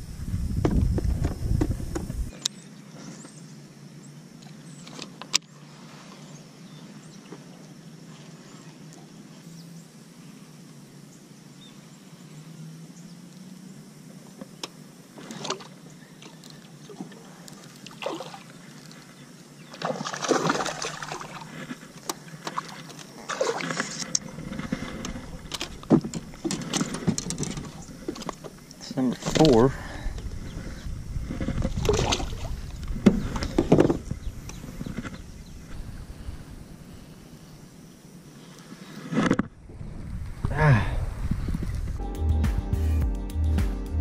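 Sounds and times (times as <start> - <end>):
fish splashing at surface: 19.8 - 21.4.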